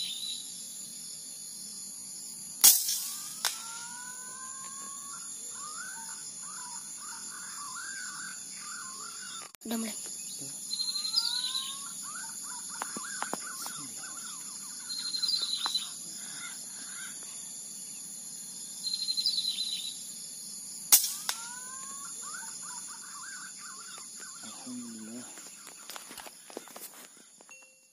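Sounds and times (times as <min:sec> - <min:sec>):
high insect drone: 0:00.0 - 0:27.6
songbird trills: 0:00.0 - 0:27.9
air rifle shot: 0:02.6 - 0:03.6, 0:20.9 - 0:21.4
gliding bird whistles: 0:02.8 - 0:09.5.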